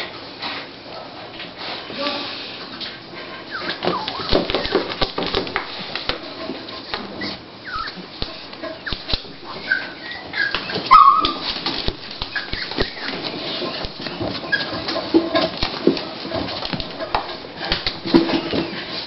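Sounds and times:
dog whimpering: 3.4 - 5.0, 7.1 - 11.6, 12.2 - 15.5.

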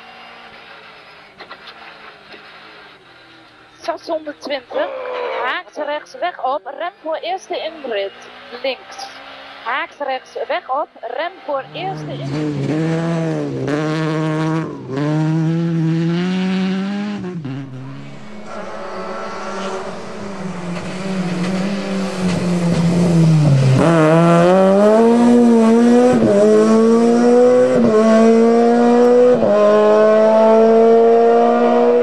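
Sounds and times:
rally car engine revving: 4.6 - 5.6, 10.5 - 32.0.

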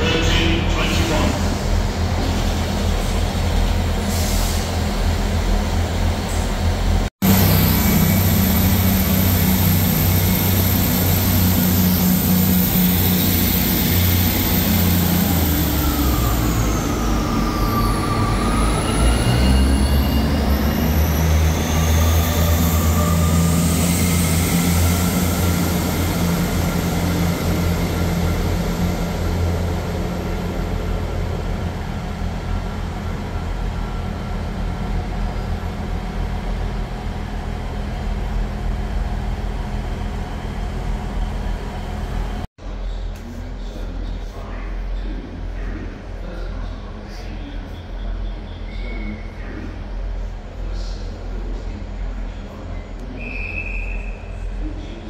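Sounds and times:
diesel engines throbbing: 0.0 - 42.5
train whine: 0.0 - 43.6.

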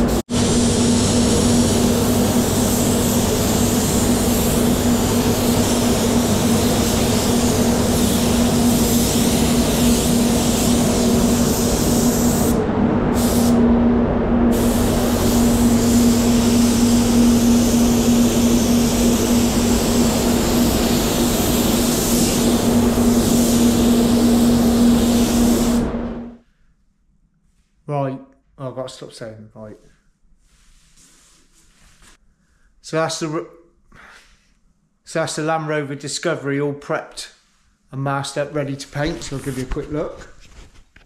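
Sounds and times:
spray gun air hiss: 0.0 - 13.6, 14.5 - 26.4
constant low hum: 0.0 - 26.4.

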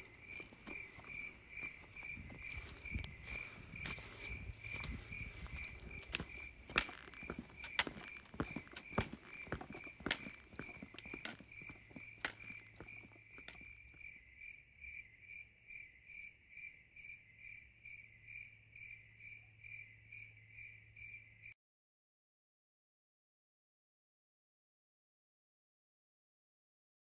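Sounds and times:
footsteps: 0.0 - 14.1
crickets chirping: 0.0 - 21.6
trekking pole taps: 6.0 - 13.6.

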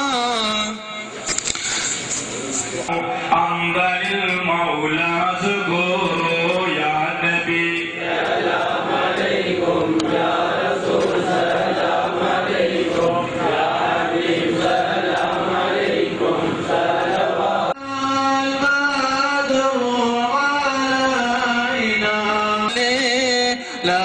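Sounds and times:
group of voices chanting: 8.0 - 17.8.

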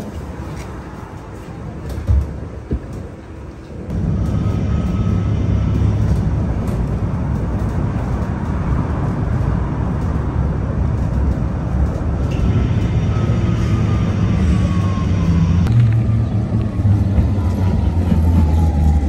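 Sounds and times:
vehicle engine and road rumble: 0.0 - 19.0.

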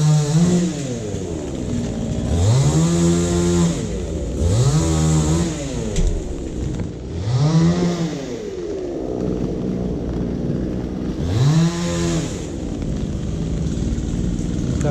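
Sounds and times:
two-stroke engine revving: 0.0 - 14.9.

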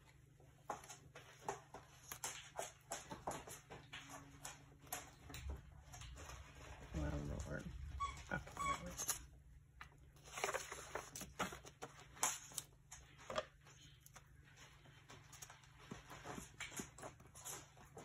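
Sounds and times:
faint clicks and taps: 0.1 - 6.9
paper rustling: 9.9 - 18.0.

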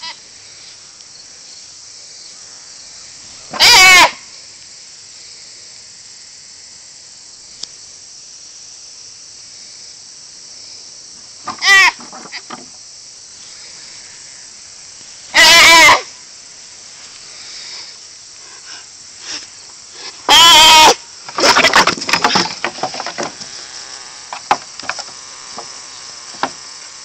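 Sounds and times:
deer fawn bleating: 3.5 - 4.2, 11.6 - 12.0, 15.3 - 16.1, 20.3 - 21.0
knocks and rustling: 21.3 - 23.6, 24.3 - 26.7.

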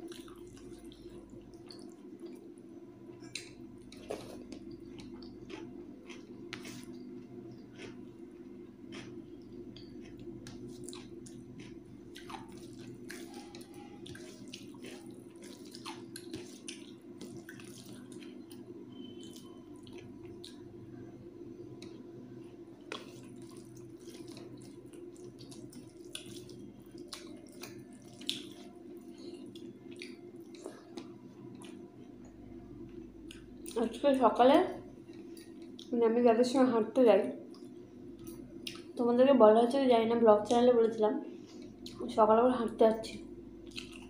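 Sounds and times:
low hum: 0.0 - 44.0
wet squishing of food by hand: 3.3 - 20.7, 22.8 - 31.8.

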